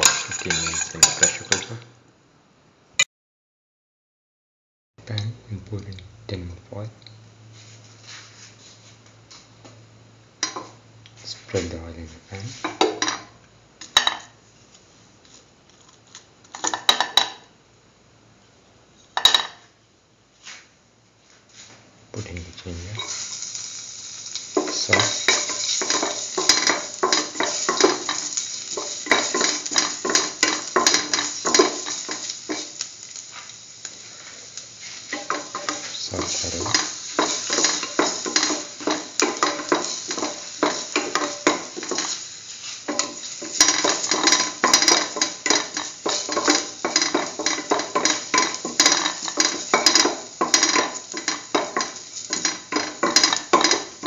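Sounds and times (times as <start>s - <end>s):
light sizzle of oil: 10.4s - 17.5s, 20.4s - 54.0s.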